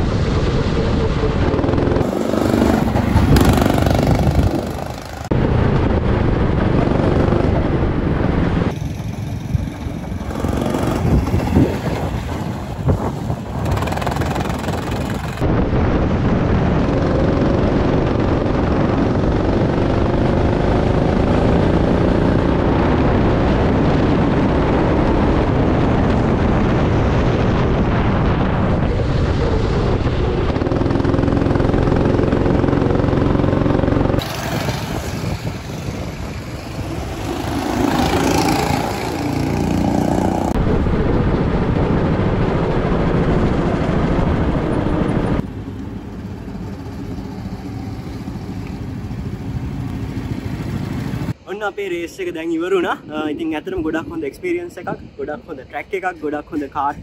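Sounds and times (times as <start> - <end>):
go-kart engine revving: 1.0 - 5.3, 8.7 - 15.4, 30.5 - 40.6.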